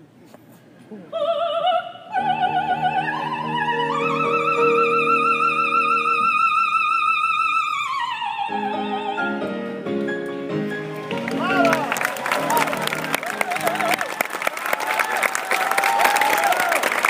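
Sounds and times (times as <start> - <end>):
operatic soprano singing: 1.0 - 9.7
piano chords: 2.2 - 7.2, 7.8 - 14.2.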